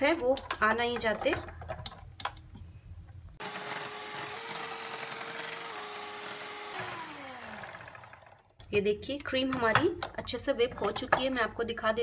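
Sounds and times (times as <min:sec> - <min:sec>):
electric hand mixer whining: 0:03.4 - 0:08.4.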